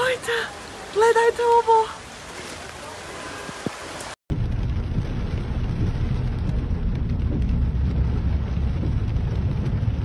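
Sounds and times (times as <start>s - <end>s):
car driving on wet road: 2.4s - 10.0s.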